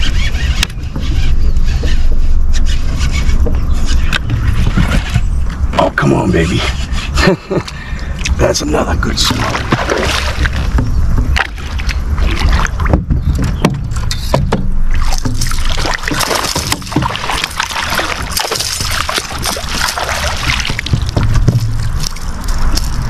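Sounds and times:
fish splashing at surface: 14.9s - 23.0s.

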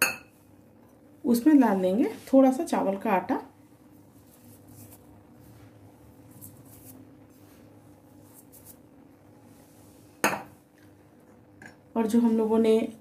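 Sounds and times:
low steady hum: 0.0s - 13.0s
flour scraping and rustling: 4.0s - 10.2s.

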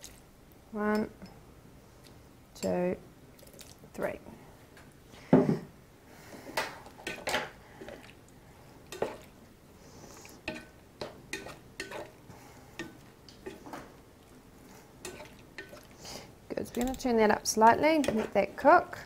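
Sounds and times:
spatula scraping a frying pan: 15.0s - 16.2s.

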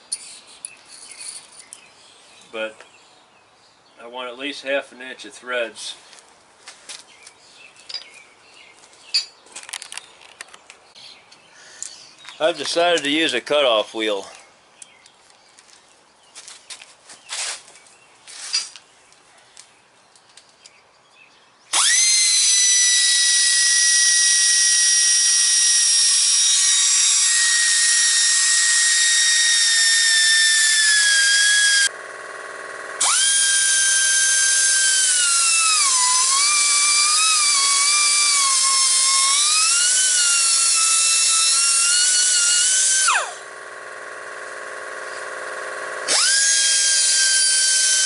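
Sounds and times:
air cutoff tool whining: 21.7s - 48.0s
abrasive wheel cutting steel rod: 21.8s - 48.0s.

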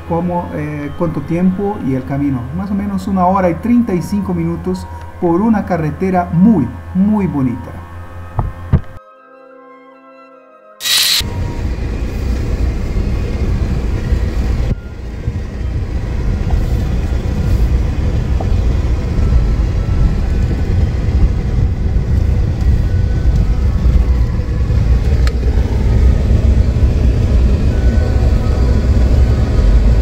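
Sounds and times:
car tyres and engine rumbling: 10.8s - 30.0s.

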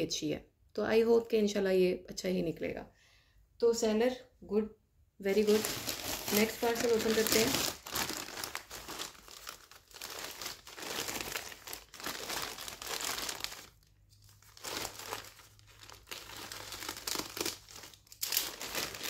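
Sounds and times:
packaging torn open and crumpled: 5.4s - 19.0s.

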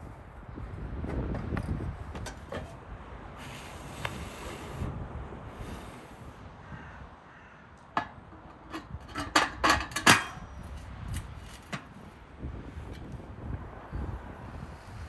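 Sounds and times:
metal clanks: 7.9s - 10.8s.

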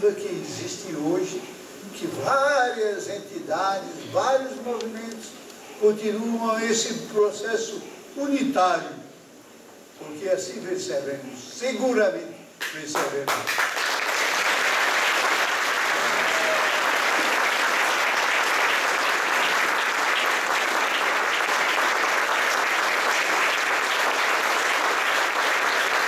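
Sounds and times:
audience applauding: 12.9s - 26.0s.

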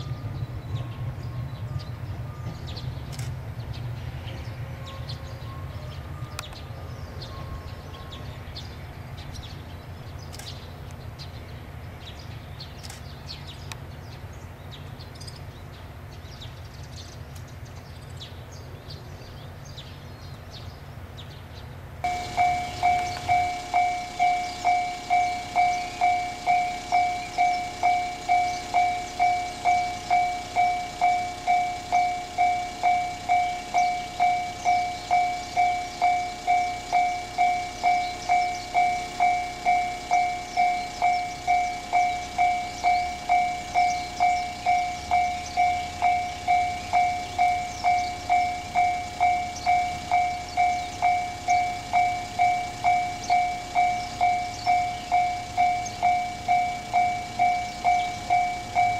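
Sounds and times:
level crossing warning bell: 0.0s - 3.1s, 3.7s - 9.6s, 22.0s - 58.9s
birds chirping: 0.0s - 58.9s
train rumbling: 0.0s - 58.9s.

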